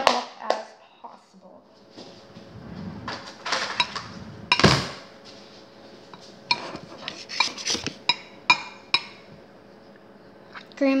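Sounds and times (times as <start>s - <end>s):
utensil clinking against a bowl: 6.5s - 9.3s.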